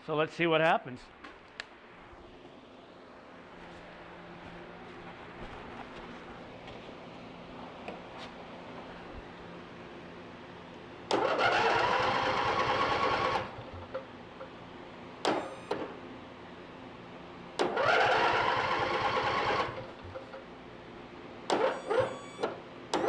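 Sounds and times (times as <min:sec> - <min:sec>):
electric starter cranking engine: 0:11.1 - 0:14.0, 0:17.6 - 0:20.3, 0:21.5 - 0:23.0.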